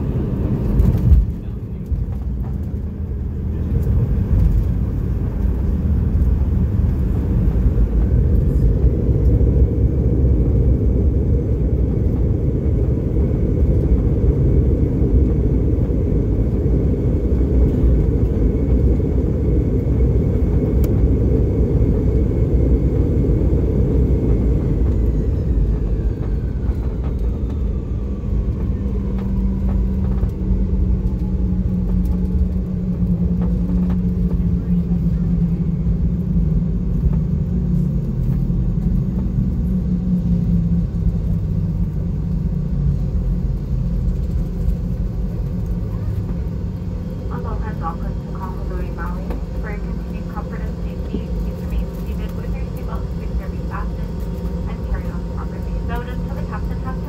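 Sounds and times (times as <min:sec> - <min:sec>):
aircraft cabin low rumble: 0:00.0 - 0:57.0
jet engines whining: 0:00.0 - 0:57.0.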